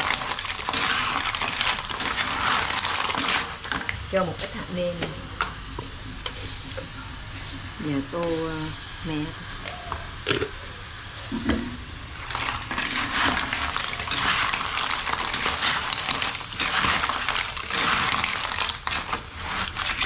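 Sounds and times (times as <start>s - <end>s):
shells clattering in a wok: 0.0s - 3.9s, 12.2s - 20.0s
sizzling: 0.0s - 20.0s.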